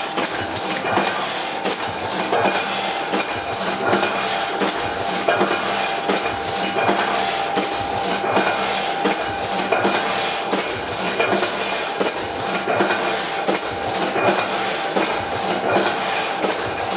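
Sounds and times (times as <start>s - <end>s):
printing press clacking: 0.0s - 16.9s.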